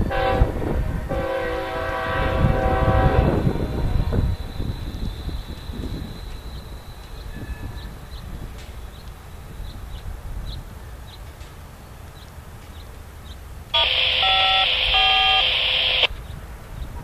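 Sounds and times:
electronic beeping tones: 13.8 - 16.1.

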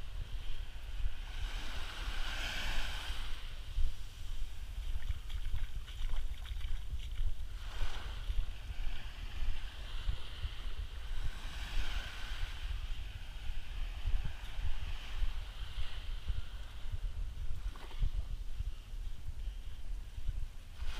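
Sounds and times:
small waves washing onto sand: 0.0 - 18.5, 20.7 - 20.9
wind buffeting microphone: 0.0 - 20.9.

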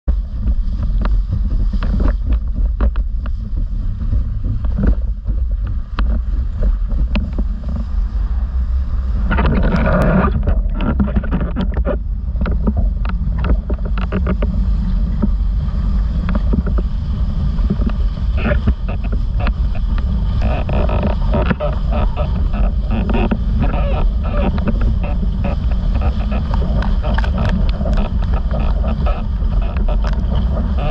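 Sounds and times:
wind buffeting microphone: 0.0 - 30.9
rush of spray: 0.2 - 30.9.

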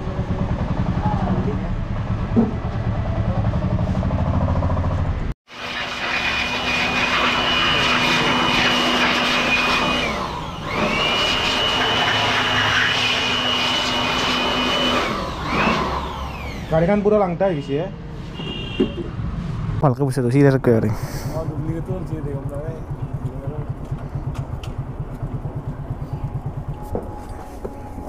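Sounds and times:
electric air blower whining: 5.5 - 17.1.

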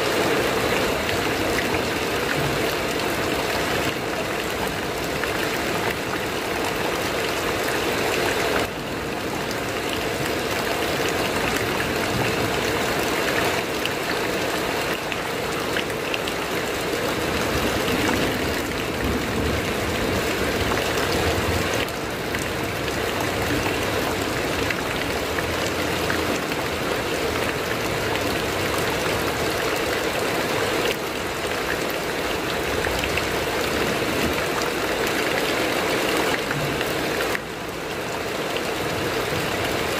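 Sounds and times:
heavy rain on a metal roof: 0.0 - 39.9.

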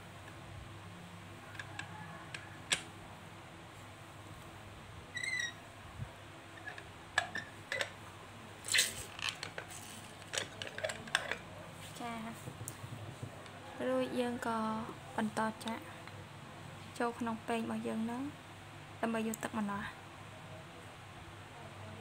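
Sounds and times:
high squeaky chirps: 5.1 - 5.7
juicer clicks and knocks: 6.6 - 8.0.

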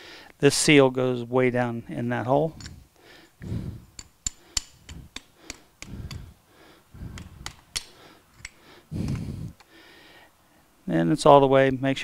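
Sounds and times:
hammer tapping metal socket: 3.9 - 6.3, 7.1 - 9.2.

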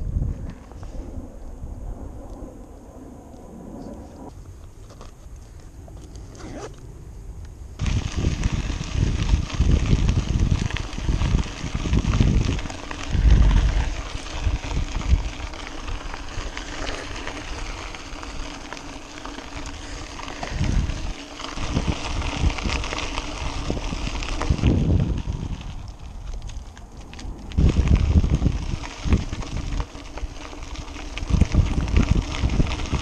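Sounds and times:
wind buffeting microphone: 0.0 - 4.3, 7.7 - 33.0
bicycle tyres crunching on gravel: 7.8 - 33.0.

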